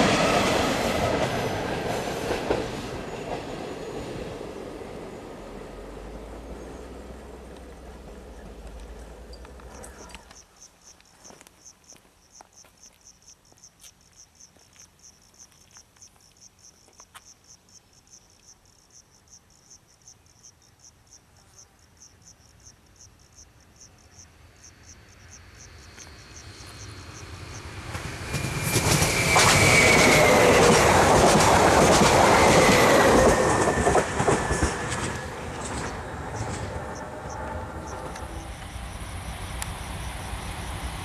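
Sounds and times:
approaching electric train: 0.0 - 13.6, 22.6 - 41.0
insect chirping: 3.0 - 30.6, 36.0 - 41.0.

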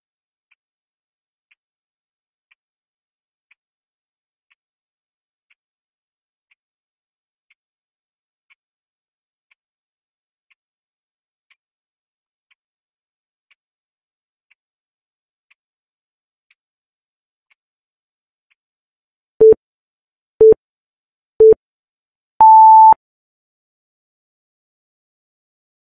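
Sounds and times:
faint timer tick: 22.4 - 23.0
longer higher beep: 22.4 - 23.0
short loud beeps: 22.4 - 23.0.

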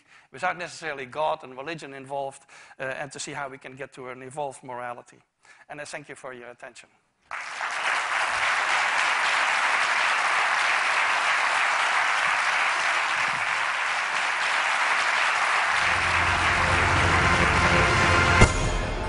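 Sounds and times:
audience applauding: 7.3 - 18.6
music: 15.7 - 19.0.

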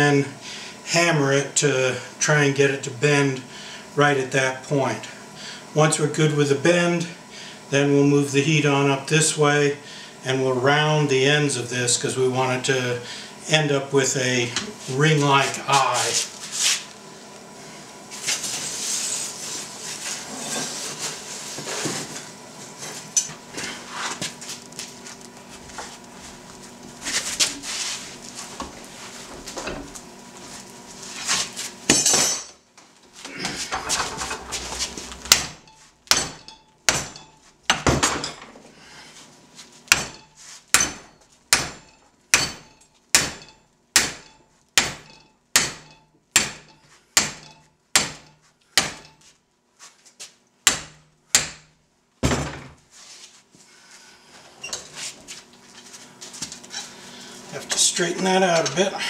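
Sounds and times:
metal clattering and scraping: 33.6 - 35.8.

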